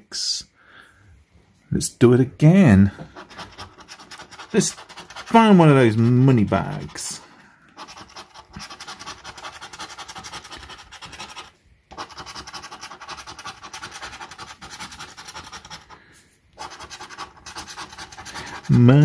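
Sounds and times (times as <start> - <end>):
coin scratching scratch card: 3.2 - 7.2, 7.8 - 16.0, 16.6 - 19.0.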